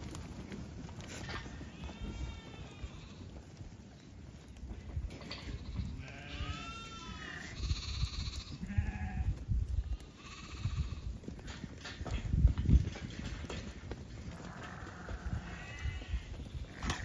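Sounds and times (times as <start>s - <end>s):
sheep bleating: 1.2s - 3.5s, 5.3s - 11.2s, 14.3s - 17.0s.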